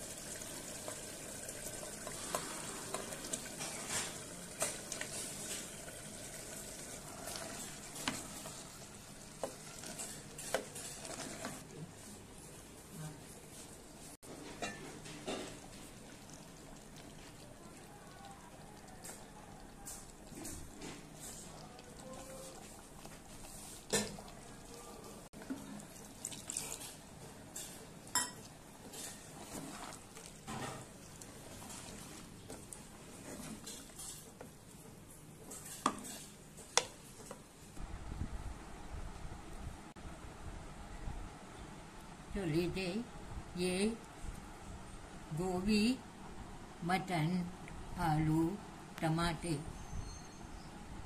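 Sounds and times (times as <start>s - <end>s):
wooden spoon stirring sizzling food: 0.0s - 37.8s
spoon scraping through food: 9.4s - 11.7s, 26.3s - 34.6s, 35.4s - 37.4s
spoon clinking against metal pot: 27.6s - 29.1s.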